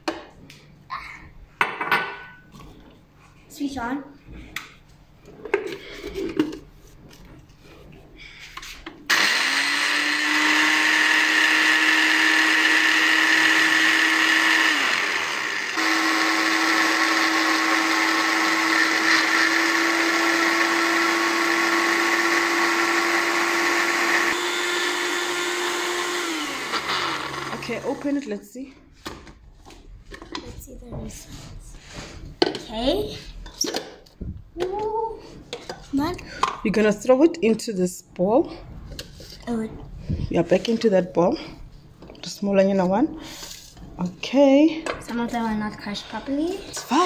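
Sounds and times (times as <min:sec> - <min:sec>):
blender motor running: 0:09.1 - 0:28.2.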